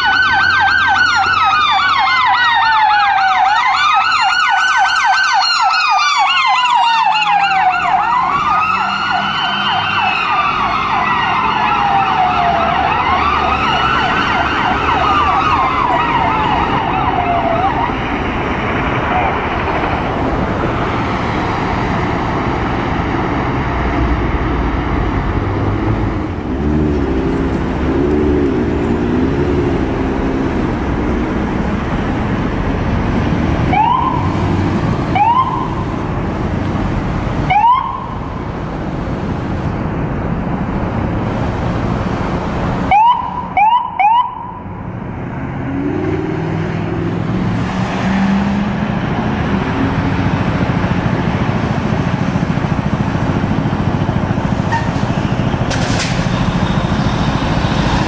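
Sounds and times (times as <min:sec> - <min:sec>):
wailing siren: 0:00.0 - 0:20.6, 0:26.6 - 0:36.1, 0:37.4 - 0:38.4, 0:42.9 - 0:45.0
street traffic: 0:00.0 - 0:58.0.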